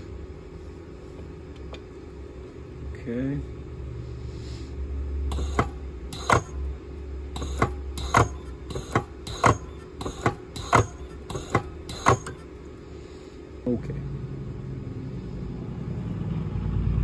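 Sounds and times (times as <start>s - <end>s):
low steady hum: 0.0s - 17.0s
spot welder snapping: 5.3s - 12.7s.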